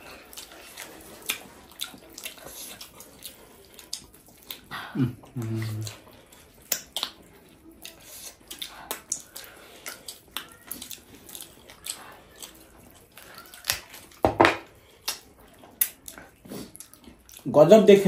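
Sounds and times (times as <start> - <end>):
mouth chewing meat: 0.0 - 17.5
wet mouth smacks and clicks: 6.6 - 7.2, 8.5 - 10.5, 15.0 - 16.2.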